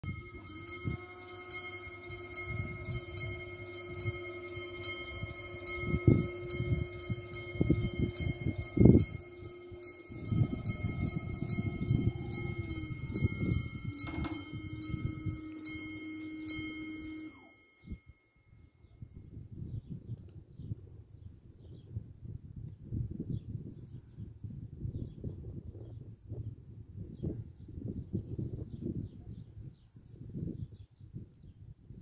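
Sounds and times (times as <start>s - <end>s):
barrier motor hum: 0.0s - 18.0s
electronic warning bell ringing: 0.0s - 18.6s.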